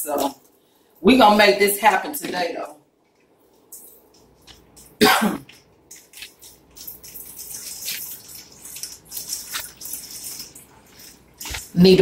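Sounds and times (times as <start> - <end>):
water running into sink: 5.7 - 12.0.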